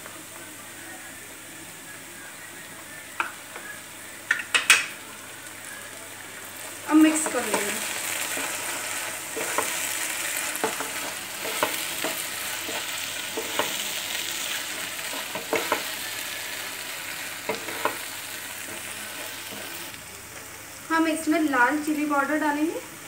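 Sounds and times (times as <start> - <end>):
vegetables sizzling in oil: 0.0 - 23.0
spatula knocking and scraping pan: 7.1 - 9.8, 10.4 - 13.8, 15.1 - 15.9, 17.4 - 19.8.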